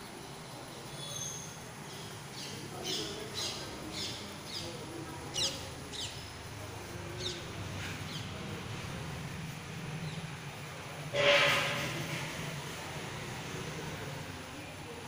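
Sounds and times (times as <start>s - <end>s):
bird chirping: 0.9s - 6.4s.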